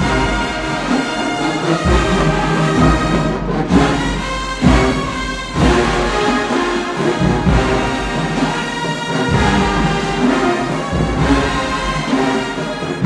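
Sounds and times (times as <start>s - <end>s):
marching band brass chords: 0.0s - 13.0s.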